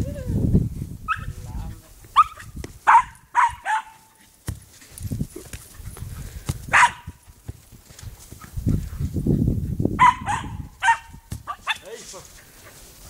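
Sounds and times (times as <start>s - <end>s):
dog barking: 1.1s - 1.3s, 2.2s - 4.1s, 6.7s - 7.1s, 10.0s - 11.9s.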